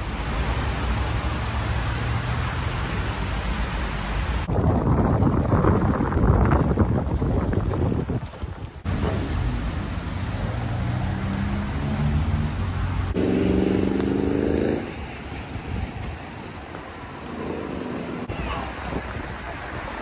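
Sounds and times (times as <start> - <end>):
traffic hiss on wet roads: 0.0 - 4.5, 8.8 - 20.0
vehicle engine humming: 8.8 - 20.0.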